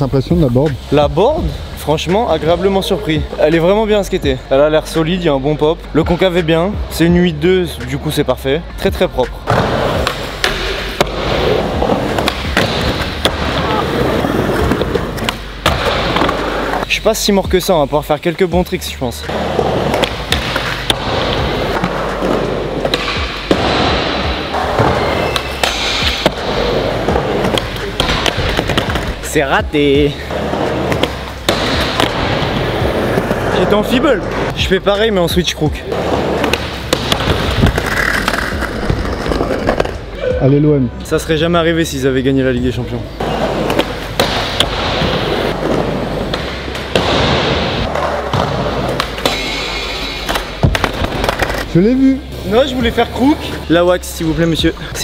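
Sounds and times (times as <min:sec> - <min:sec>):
skateboard wheels rolling: 0:09.5 - 0:17.0, 0:19.3 - 0:29.2, 0:30.2 - 0:34.5, 0:35.9 - 0:40.2, 0:43.1 - 0:51.8
skateboard thump: 0:14.4 - 0:16.5, 0:19.8 - 0:29.2, 0:30.8 - 0:33.4, 0:36.0 - 0:40.0, 0:43.3 - 0:51.7
skateboard wheels rolling on wood: 0:35.8 - 0:40.1.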